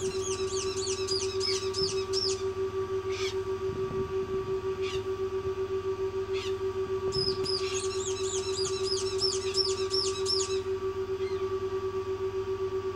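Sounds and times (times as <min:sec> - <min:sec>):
parrot chick peeping: 0:00.0 - 0:02.4
pulsing machine hum: 0:00.0 - 0:12.9.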